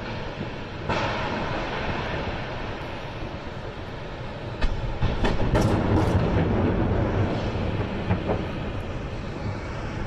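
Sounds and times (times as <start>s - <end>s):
heavy fire rumble: 0.0s - 10.0s
fireball blast: 0.6s - 3.2s.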